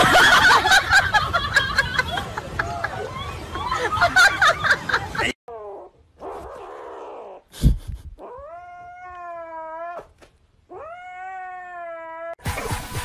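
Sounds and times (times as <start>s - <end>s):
kitten yowling: 8.2s - 10.1s, 10.7s - 12.4s.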